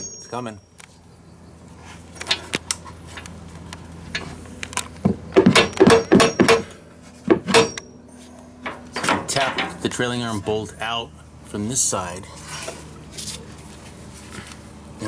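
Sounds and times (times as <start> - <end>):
hammer striking metal: 0.0 - 0.4, 5.4 - 7.9.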